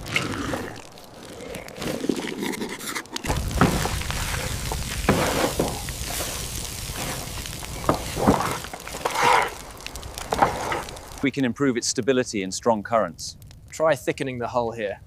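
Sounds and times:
sizzling hiss: 3.3 - 11.3.

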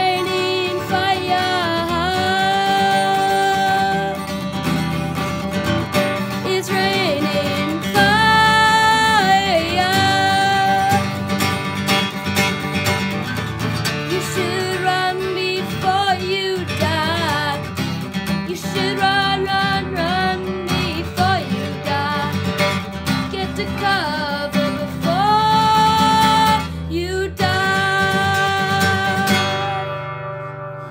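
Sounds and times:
person singing long notes: 0.0 - 4.3, 6.4 - 11.2, 23.3 - 30.1
acoustic guitar strumming: 0.0 - 30.9.

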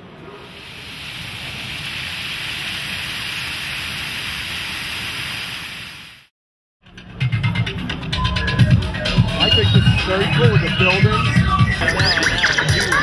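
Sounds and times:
fountain water splashing: 0.4 - 6.3.

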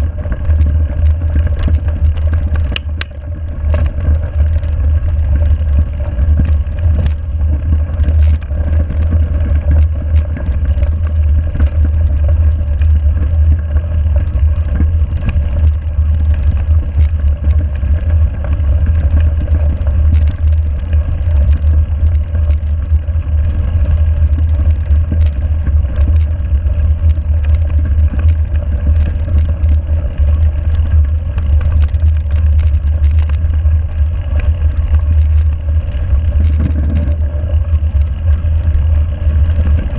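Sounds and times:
gravel and bike rattling: 0.0 - 39.9
wind and tyres rumbling: 0.0 - 39.9.

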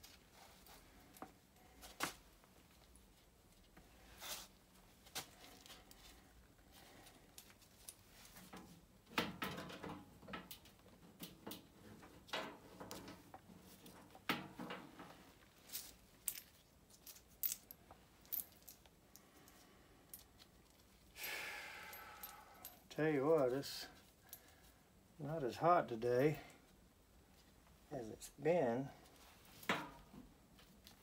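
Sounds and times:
metal clinks and clicks: 21.9 - 22.9.

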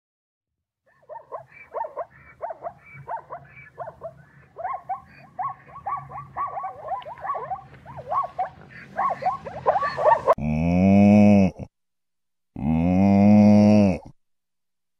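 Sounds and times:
zebra yelping barks: 0.9 - 10.4
cow mooing: 10.4 - 11.6, 12.6 - 14.1.

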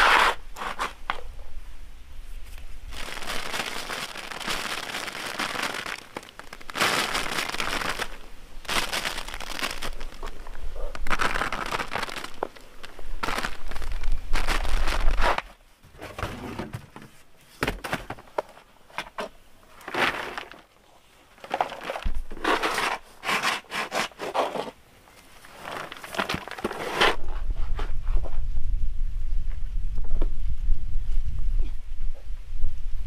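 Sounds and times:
dried chips rustling and clattering: 2.9 - 15.6, 17.8 - 20.8, 21.4 - 27.2.

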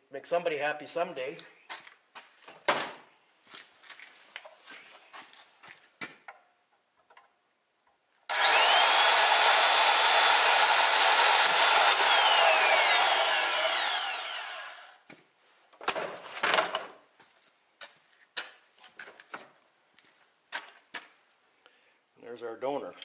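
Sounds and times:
band saw cutting metal tube: 8.3 - 15.0.

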